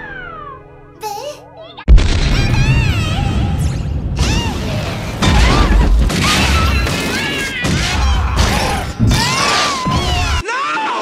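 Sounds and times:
low rumble: 1.9 - 6.1.

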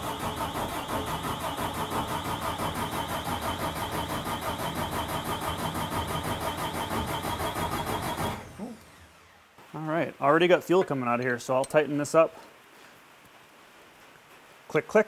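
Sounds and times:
starter motor cranking diesel engine: 0.0 - 9.4.

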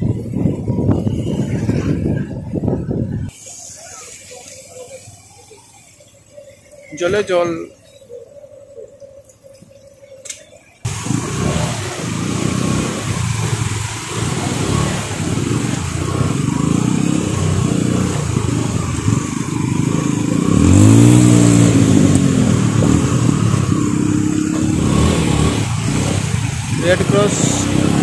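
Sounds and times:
steady hiss of water: 3.3 - 28.0
motorbike engine revving: 10.8 - 28.0.

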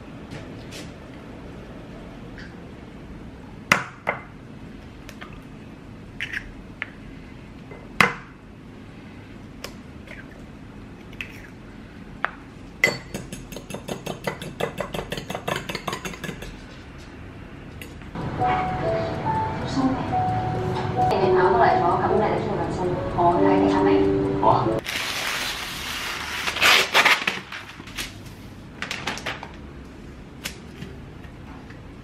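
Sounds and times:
eggs cracking on a bowl: 13.0 - 16.6
utensil beating eggs in a bowl: 13.2 - 16.6.

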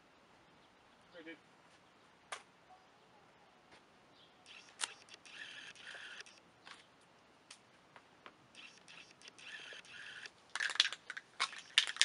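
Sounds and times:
sharp clicks: 4.4 - 6.4, 8.5 - 12.0.

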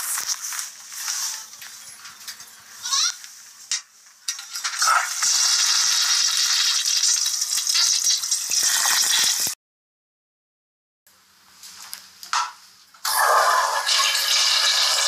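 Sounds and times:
toilet flushing: 13.0 - 15.0.

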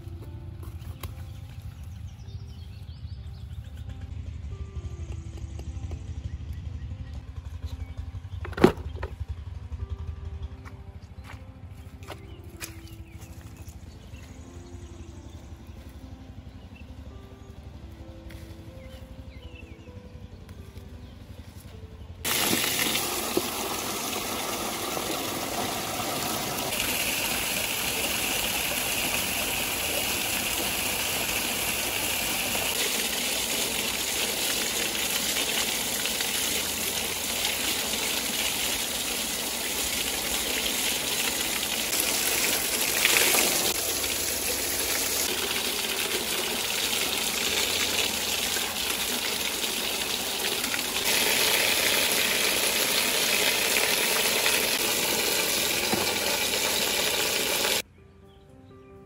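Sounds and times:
water gushing from a pipe: 22.3 - 57.8
water splashing over vegetables: 22.3 - 57.8.

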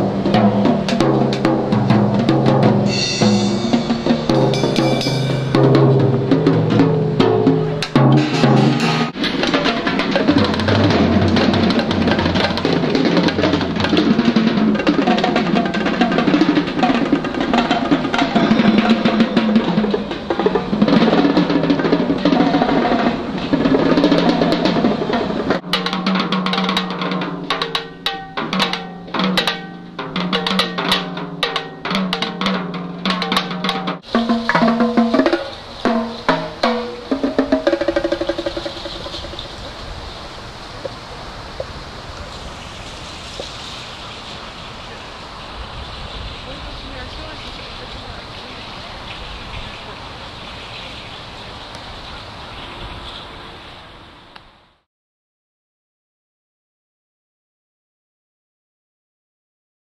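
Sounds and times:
snare drum and tom-toms: 0.0 - 39.8
low held tone: 2.9 - 6.0.

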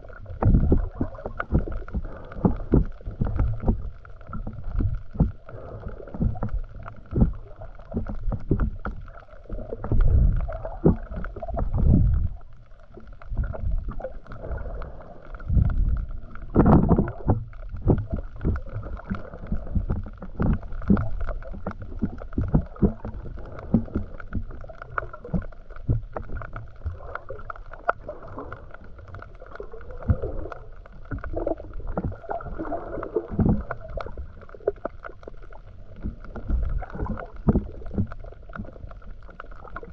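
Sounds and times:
muffled underwater water movement: 0.0 - 39.9
small clicks and knocks: 15.2 - 32.3.

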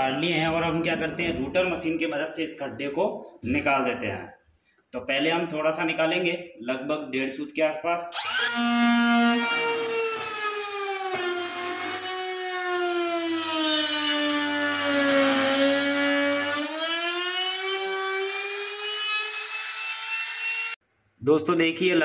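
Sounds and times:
trim router whining: 8.1 - 20.8.

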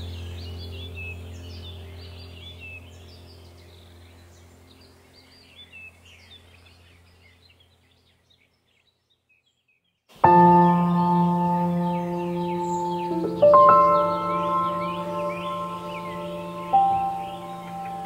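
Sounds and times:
low steady drone: 0.0 - 7.5, 10.2 - 18.0
birds chirping: 0.0 - 18.0
ambient background music: 10.2 - 18.0.

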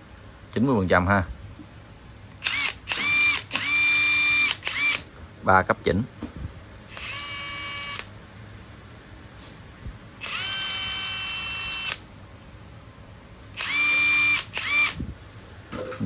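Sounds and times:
cordless driver motor whine: 2.4 - 5.1, 6.9 - 8.1, 10.2 - 12.0, 13.5 - 15.1.

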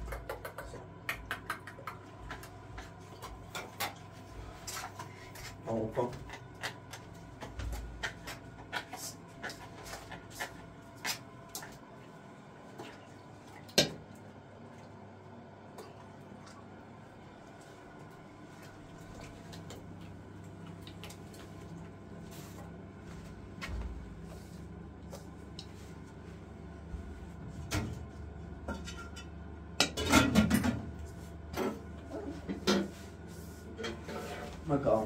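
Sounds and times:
faint steady hum: 0.0 - 35.0
metal bowls and utensils clattering: 28.7 - 30.9, 33.8 - 34.6.

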